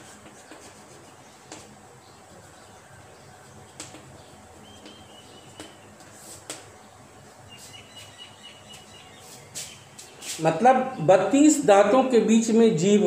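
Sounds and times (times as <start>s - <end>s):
chalk tapping and scratching on board: 0.0s - 1.8s, 4.8s - 6.7s.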